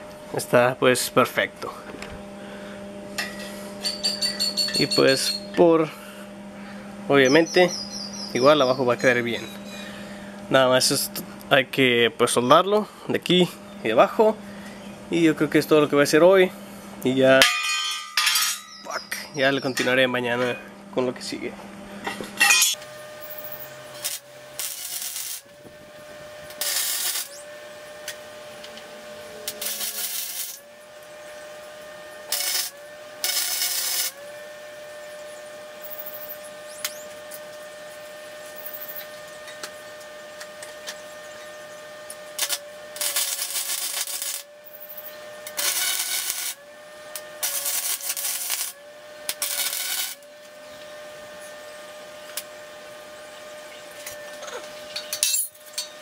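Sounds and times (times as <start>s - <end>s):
welder whine: 0.0s - 56.0s
welding arc crackle: 22.4s - 50.6s.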